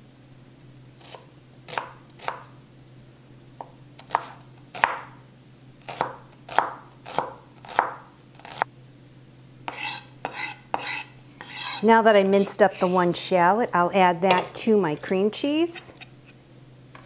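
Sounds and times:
knife chopping on wooden board: 1.0 - 2.5, 3.6 - 5.1, 5.9 - 8.6, 9.7 - 11.8.

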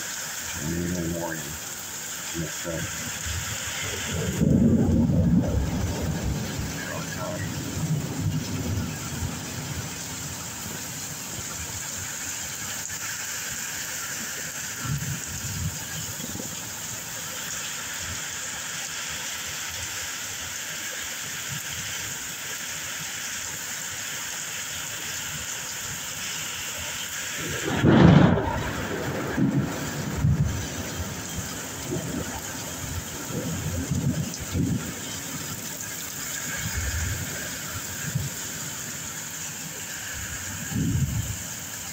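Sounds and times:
rain hiss: 0.0 - 41.9
thunder peal and rumbles: 3.1 - 12.0, 14.8 - 16.8, 27.3 - 39.1, 40.0 - 41.8.

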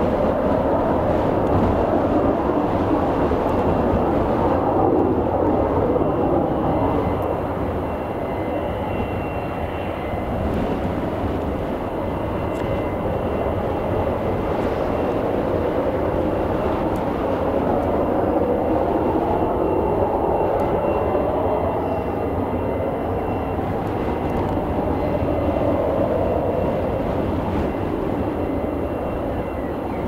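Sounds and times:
faint high whine: 0.0 - 30.0
jet engine running: 0.0 - 30.0.

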